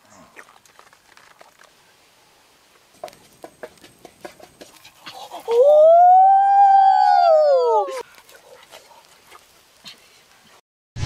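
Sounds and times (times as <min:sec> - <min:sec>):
dog howling: 0:05.5 - 0:08.0.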